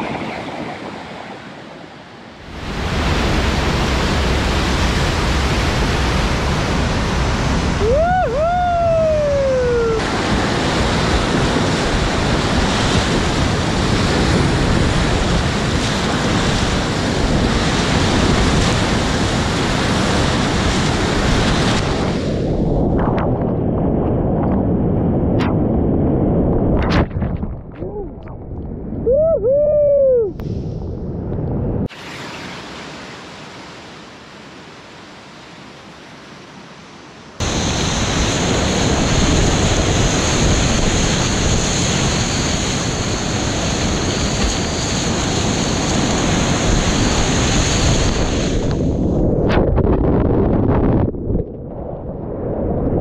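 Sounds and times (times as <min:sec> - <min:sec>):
sharp water splashes: 0:26.7 - 0:28.8.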